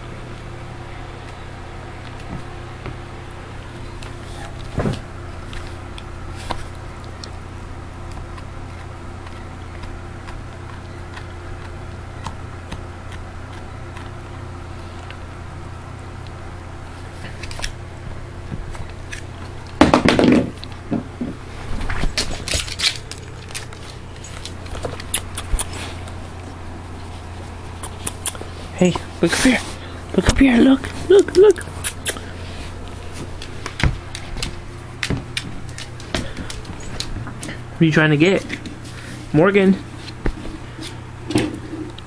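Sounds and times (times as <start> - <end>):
steady low hum: 0.0 - 42.0
dog gnawing on bone: 5.4 - 17.8, 22.0 - 30.0, 31.6 - 37.7.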